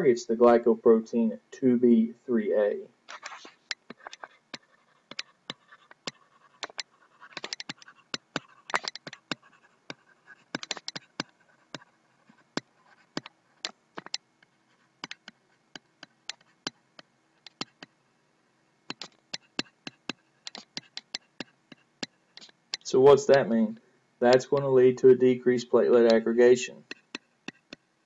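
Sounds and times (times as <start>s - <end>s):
stylus tapping on pen tablet: 3.1s - 18.0s, 18.9s - 23.5s, 26.8s - 27.9s.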